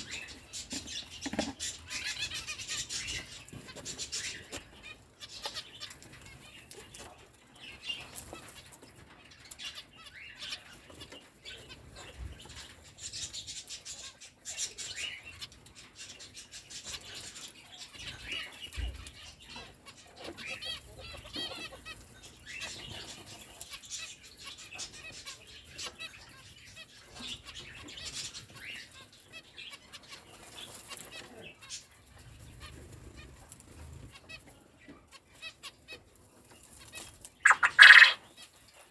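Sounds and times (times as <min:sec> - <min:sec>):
finches chirping: 0:37.0 - 0:38.6.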